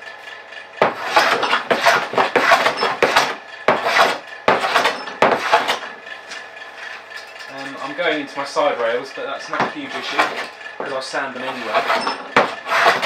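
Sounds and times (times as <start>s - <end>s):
hand plane scraping wood: 0.8s - 5.9s, 9.4s - 13.0s.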